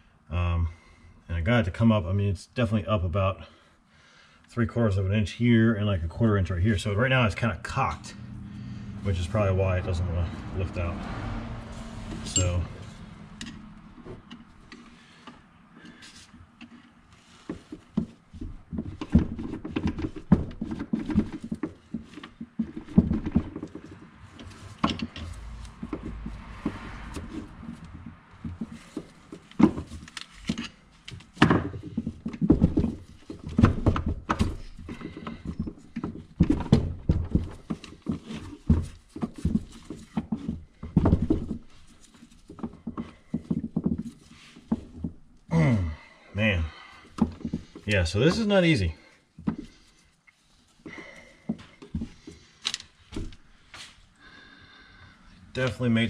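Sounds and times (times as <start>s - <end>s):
metal knocks and scrapes: 7.4s - 45.4s.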